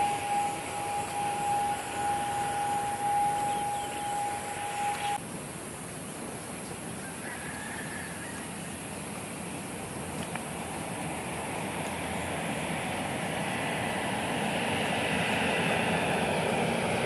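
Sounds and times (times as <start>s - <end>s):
distant aircraft engine noise: 0.0s - 5.2s, 8.0s - 17.0s
turboprop engine whine: 0.0s - 5.2s, 9.3s - 17.0s
wind: 0.0s - 17.0s.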